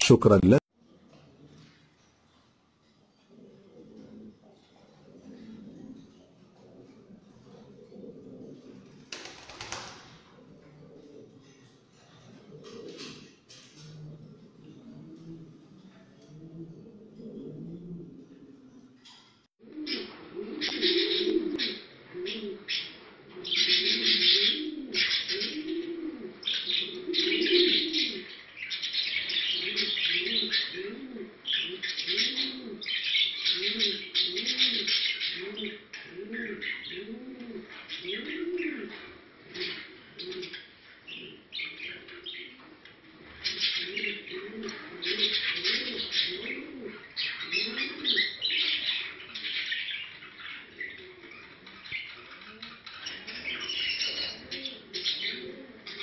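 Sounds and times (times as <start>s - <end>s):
pigeons cooing: 0.8s - 56.0s
small birds twittering: 19.8s - 42.6s, 43.3s - 56.0s
high chirping chatter: 47.0s - 56.0s.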